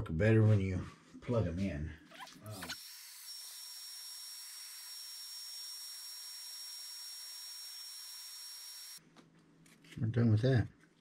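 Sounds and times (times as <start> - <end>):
heat gun blowing with high whine: 2.2 - 9.0.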